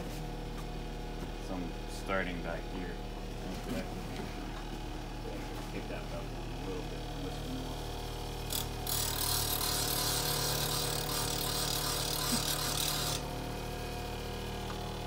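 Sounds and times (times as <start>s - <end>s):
bench grinder humming: 0.0s - 15.0s
steel grinding on wheel: 8.5s - 13.3s.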